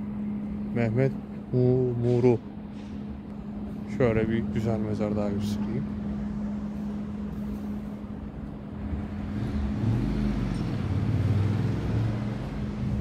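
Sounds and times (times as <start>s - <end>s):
road traffic rumbling: 0.0s - 13.0s
vehicle passing: 0.0s - 13.0s.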